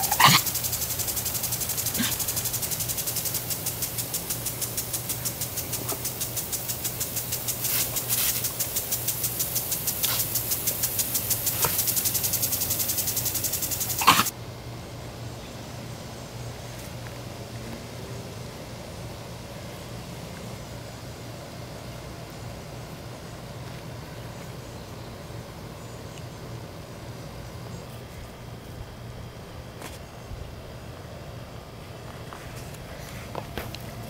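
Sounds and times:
impact sprinkler ticking and spraying: 0.0s - 14.3s.

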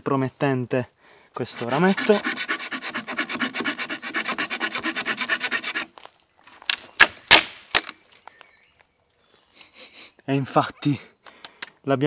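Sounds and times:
blade rasping into branch: 1.5s - 5.9s
wood cracking: 5.5s - 8.3s.

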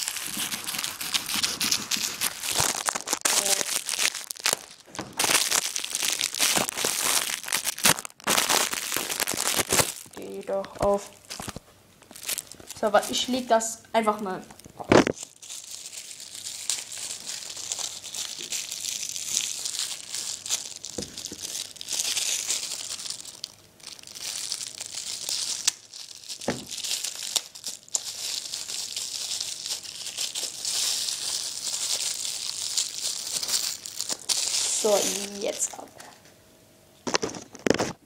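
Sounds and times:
packaging crinkling and tearing: 0.0s - 13.5s, 14.2s - 36.2s, 37.0s - 38.0s.

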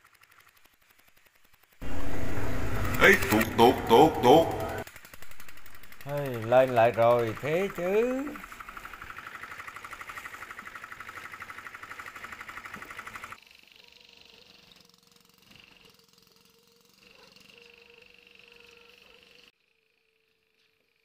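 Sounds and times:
small engine running: 0.0s - 21.0s
steady hum with high tone: 1.8s - 9.0s.

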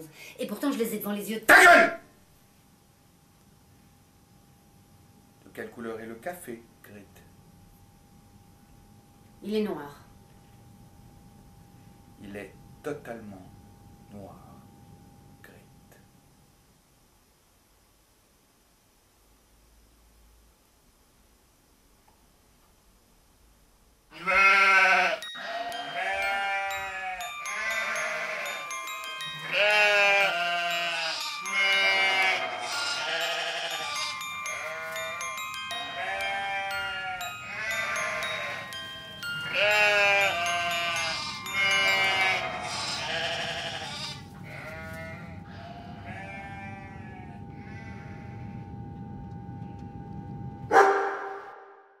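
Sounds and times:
steady held tone: 2.5s - 16.5s, 25.2s - 51.9s
music: 25.2s - 43.5s.

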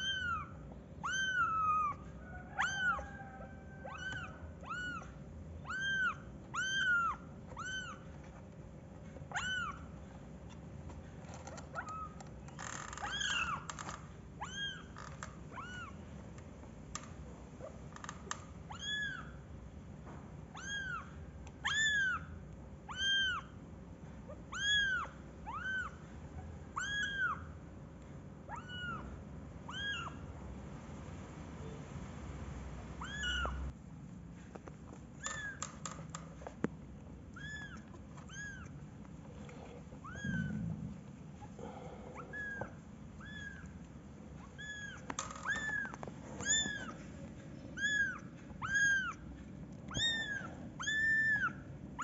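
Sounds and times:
kittens mewing: 0.0s - 8.3s, 9.2s - 10.0s, 33.0s - 33.8s, 37.3s - 52.0s.

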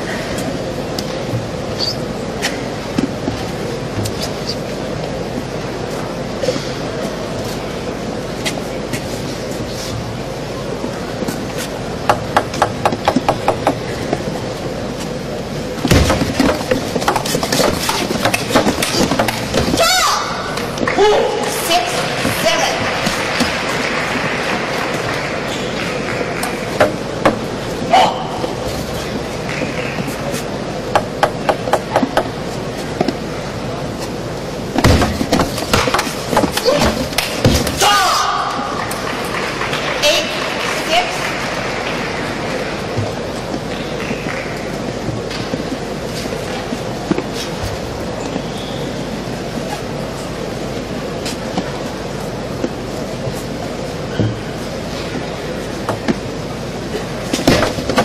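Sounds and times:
crowd shouting and cheering: 18.8s - 30.4s, 36.5s - 45.4s.

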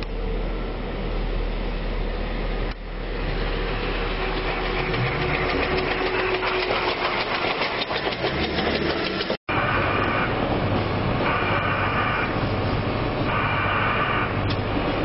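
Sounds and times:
diesel engine noise: 0.0s - 15.0s.

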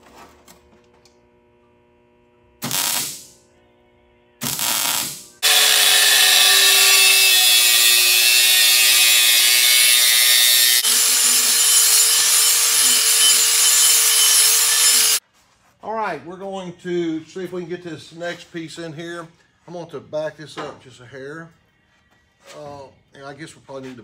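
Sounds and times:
angle grinder cutting metal tube: 4.4s - 15.2s
small grinder with abrasive disc: 4.4s - 15.2s.

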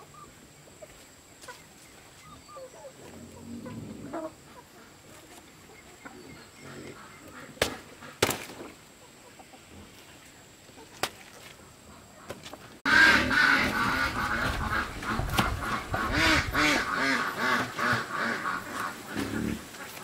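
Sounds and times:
chickens clucking: 0.0s - 20.0s
machete chopping leaf: 7.6s - 8.7s.

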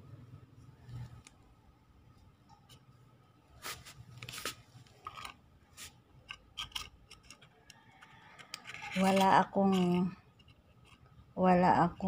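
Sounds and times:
handling noises on microphone: 2.5s - 6.0s.

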